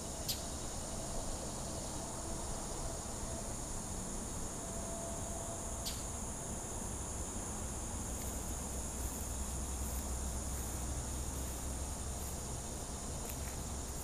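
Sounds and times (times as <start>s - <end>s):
insect chorus drone: 0.0s - 14.0s.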